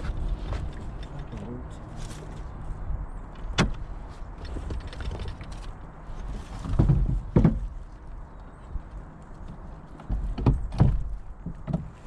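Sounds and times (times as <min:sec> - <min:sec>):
hollow thumps against hull: 0:06.6 - 0:07.8, 0:10.0 - 0:12.0.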